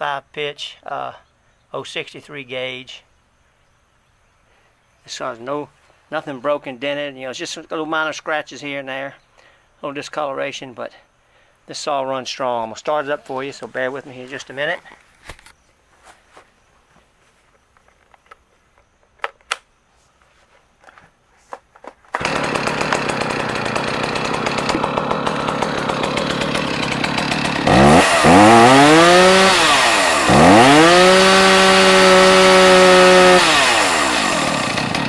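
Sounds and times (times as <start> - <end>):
chainsaw engine idling and revving: 22.2 - 35.0.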